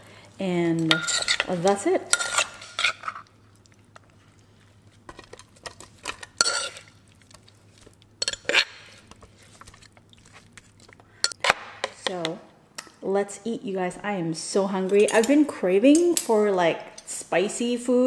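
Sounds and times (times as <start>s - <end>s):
metal spoon scraping clay mortar: 0.8s - 3.3s, 6.4s - 6.9s.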